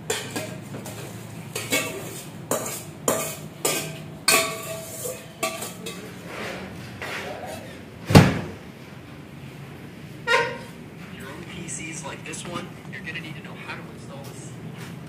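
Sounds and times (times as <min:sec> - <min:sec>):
steel pots and spoon clinking: 0:00.0 - 0:06.6.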